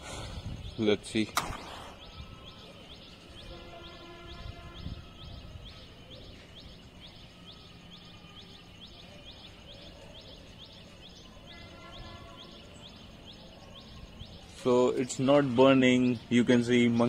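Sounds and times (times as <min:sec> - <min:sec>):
wind rumble on microphone: 0:00.0 - 0:00.8, 0:04.2 - 0:05.8.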